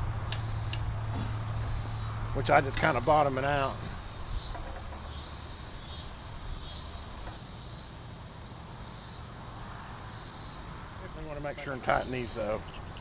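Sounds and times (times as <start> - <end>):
low steady rumble: 0.0 - 7.4
insect buzzing rasp: 0.0 - 11.1.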